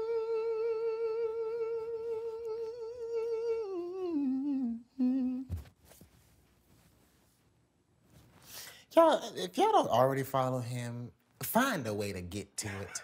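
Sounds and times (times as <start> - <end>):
man singing a cappella: 0.0 - 5.6
faint rustling: 5.4 - 8.8.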